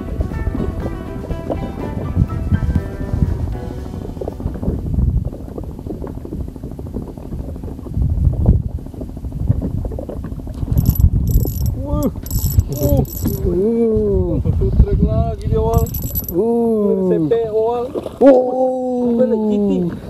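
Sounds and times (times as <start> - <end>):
fishing reel cranking: 10.8 - 13.4, 15.8 - 16.3.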